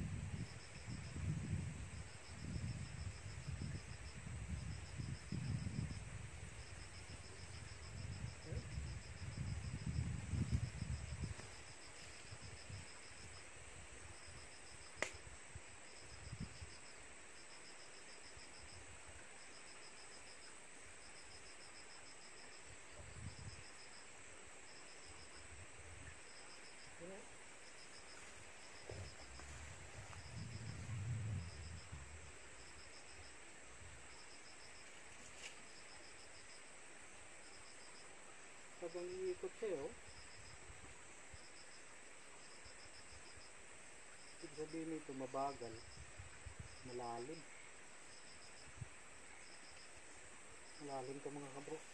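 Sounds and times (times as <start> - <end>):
gusty wind rumble on microphone: 0.0 - 14.4, 15.2 - 16.7, 23.0 - 23.6, 28.8 - 32.4, 45.8 - 46.9
insects chirping: 0.0 - 51.9.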